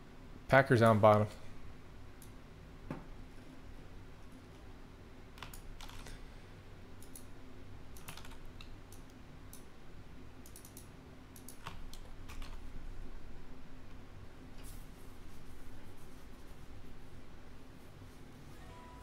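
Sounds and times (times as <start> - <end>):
low steady hum: 0.0 - 19.0
keyboard and mouse clicking: 5.4 - 6.1, 7.0 - 7.3, 7.9 - 9.7, 10.4 - 12.6.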